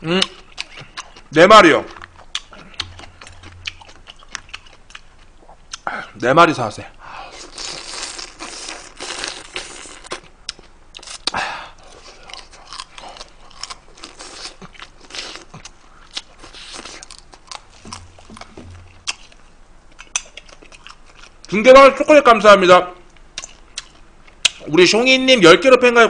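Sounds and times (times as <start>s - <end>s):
crunchy chewing: 0.0s - 5.9s, 7.3s - 21.5s
wet mouth clicks: 1.9s - 5.9s.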